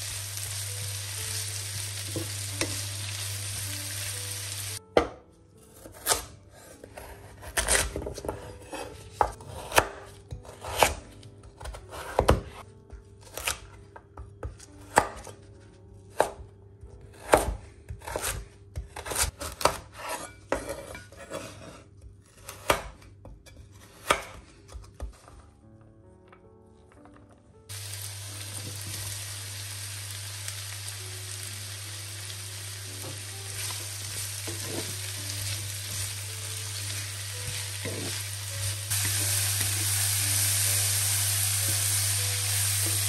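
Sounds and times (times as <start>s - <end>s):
vegetables sizzling in a pan: 0.0s - 4.8s, 27.7s - 43.0s.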